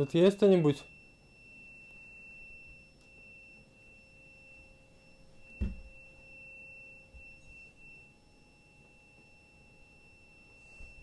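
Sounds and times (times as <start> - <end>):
low hum: 0.8 - 11.0
dull thump: 5.5 - 6.0.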